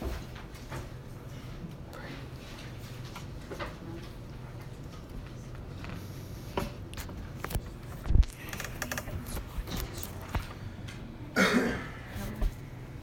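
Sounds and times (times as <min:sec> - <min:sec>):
person coughing: 0:11.4 - 0:12.1.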